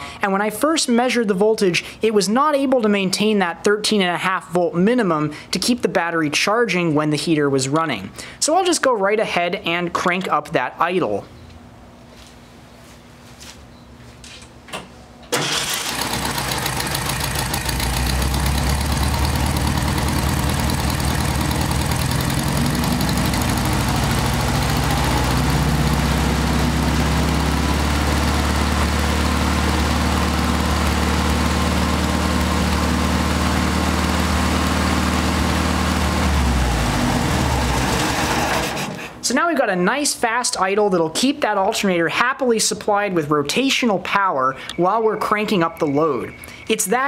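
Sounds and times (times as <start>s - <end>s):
car engine idling: 15.4s - 39.1s.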